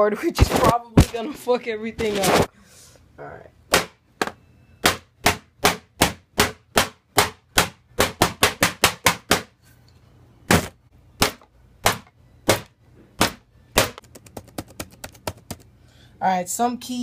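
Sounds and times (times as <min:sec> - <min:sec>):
wooden object hammering keyboard: 0:10.5 - 0:15.6.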